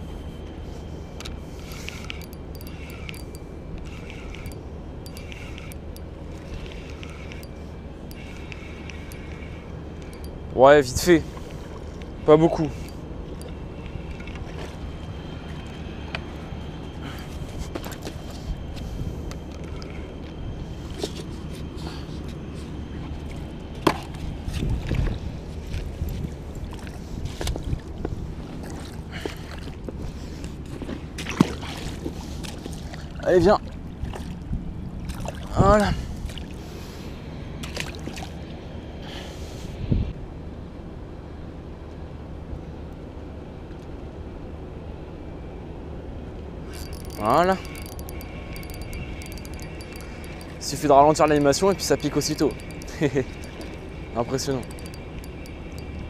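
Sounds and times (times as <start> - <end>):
fishing reel whirring and clicking: 1.6 - 10.4, 46.7 - 56.0
wind rumbling on microphone: 24.2 - 28.9, 39.6 - 40.3
small clicks: 46.7 - 50.6, 51.3 - 53.8, 54.5 - 56.0.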